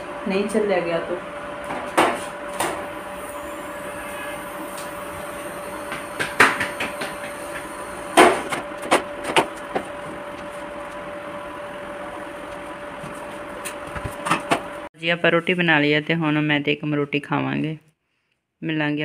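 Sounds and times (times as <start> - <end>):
faint hum: 0.0 - 15.1.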